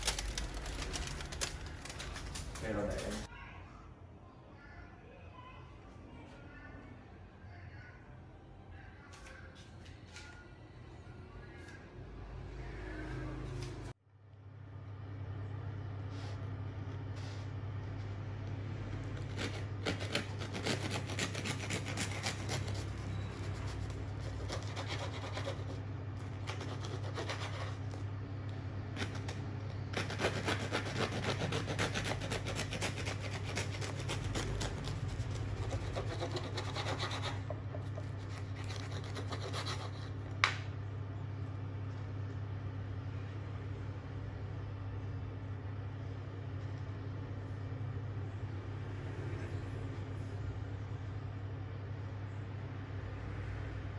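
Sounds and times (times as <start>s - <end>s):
steady low hum: 10.5s - 53.9s
bread knife sawing through crust: 19.2s - 27.9s, 29.0s - 40.2s.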